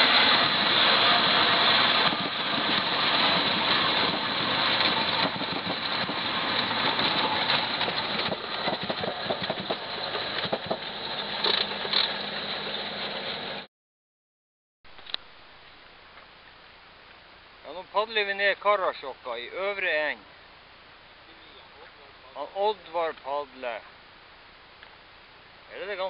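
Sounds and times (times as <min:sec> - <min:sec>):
plane engine and propeller from cabin: 0:00.0 - 0:13.7.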